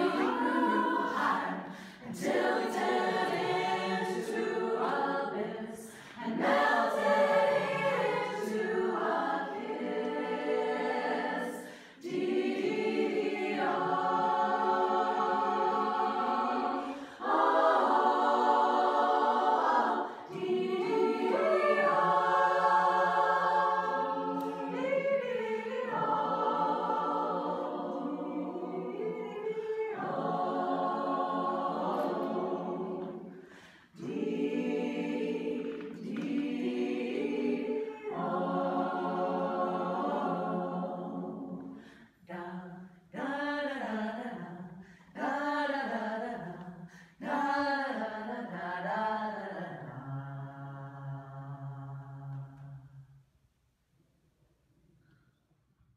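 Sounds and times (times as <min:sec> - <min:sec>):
women's choir singing: 0:00.0 - 0:53.0.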